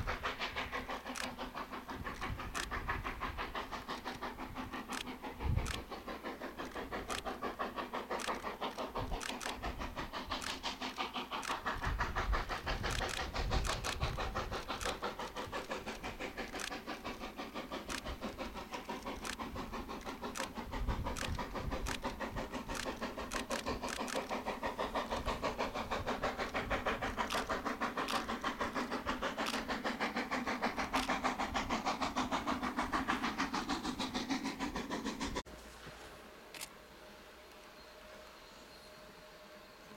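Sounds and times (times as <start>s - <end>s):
steam locomotive chuffing: 0.0s - 39.9s.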